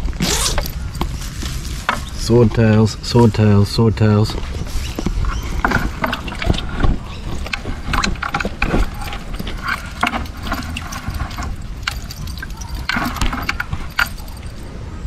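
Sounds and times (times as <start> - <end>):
mesh trap rustling and clicking: 4.8 - 14.7.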